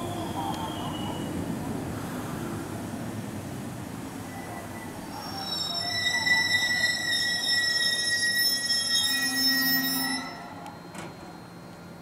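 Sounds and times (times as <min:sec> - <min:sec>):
train brakes squealing: 0:00.0 - 0:01.4, 0:04.2 - 0:12.0.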